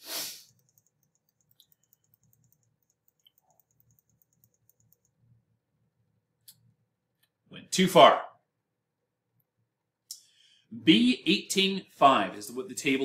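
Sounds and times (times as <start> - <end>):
mouse scroll wheel ticking: 0.4 - 5.2.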